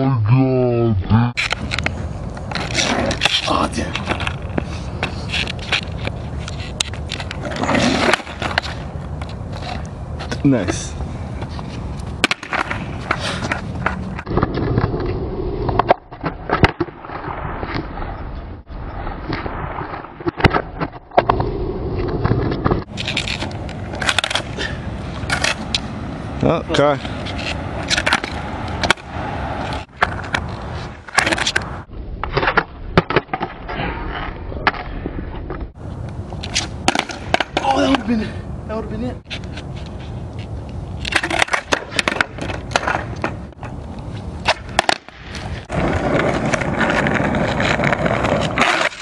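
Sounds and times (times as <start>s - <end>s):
skateboard wheels rolling on pavement: 1.4s - 49.0s
skateboard clacking on pavement: 41.0s - 43.8s, 44.4s - 49.0s.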